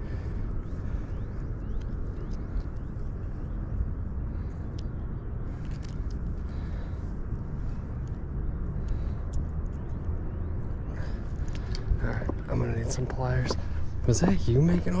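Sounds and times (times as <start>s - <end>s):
wind rumbling on microphone: 0.0s - 15.0s
light clicks: 5.6s - 6.4s.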